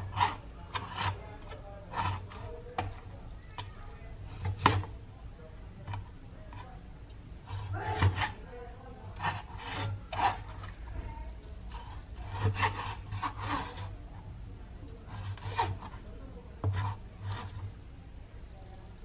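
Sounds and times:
knife slicing meat on cutting board: 1.9s - 2.4s, 7.5s - 8.4s, 9.2s - 10.5s, 11.7s - 13.9s, 15.1s - 16.0s.

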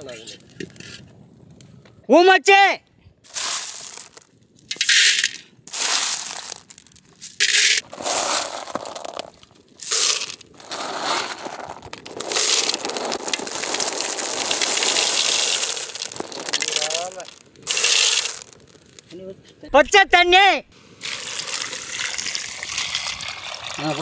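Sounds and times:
snail shells clattering into pot: 3.3s - 19.1s.

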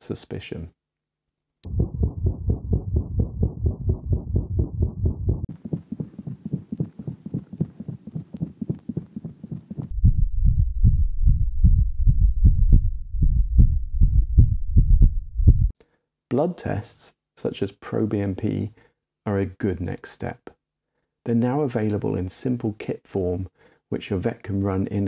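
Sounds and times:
cat heartbeats: 1.6s - 15.7s
heart murmur hiss: 1.8s - 15.7s.

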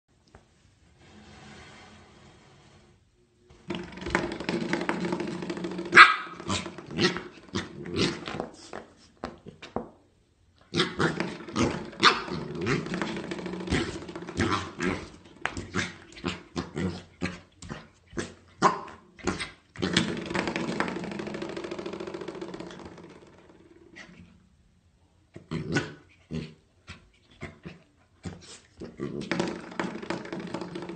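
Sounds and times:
puppy barking and yipping: 5.9s - 6.4s.

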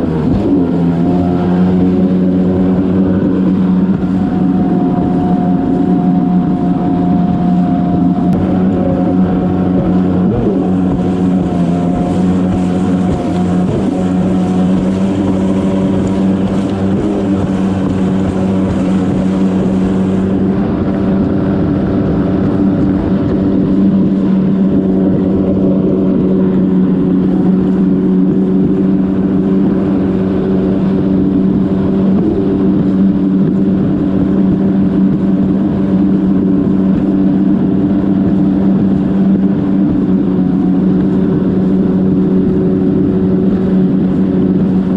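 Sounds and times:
jet ski engine running: 0.0s - 44.9s.

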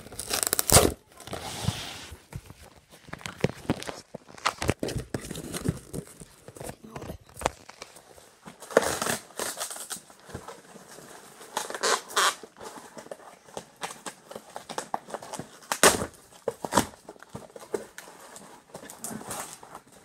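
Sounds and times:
cardboard tearing: 0.0s - 2.1s, 8.6s - 20.0s
cardboard rustling and scraping: 0.0s - 20.0s.

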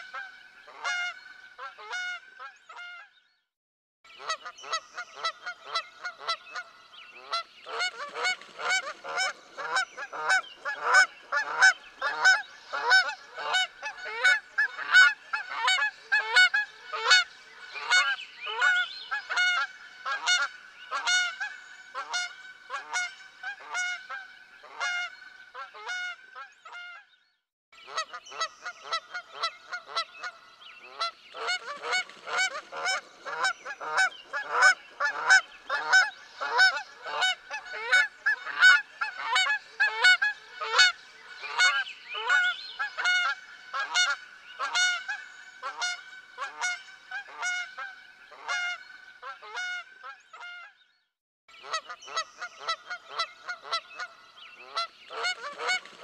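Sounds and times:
geese honking: 0.0s - 3.0s, 4.2s - 27.0s, 27.9s - 50.7s, 51.6s - 56.0s.

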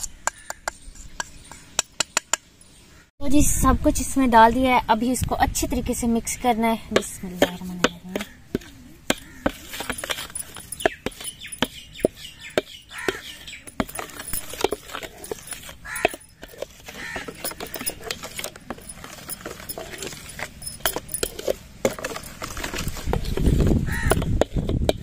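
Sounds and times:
plastic ladle scraping steel bowl: 6.9s - 25.0s.

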